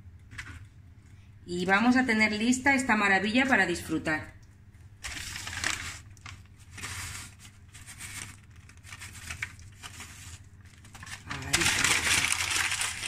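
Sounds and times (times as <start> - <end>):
paper bag crinkling: 5.0 - 13.0.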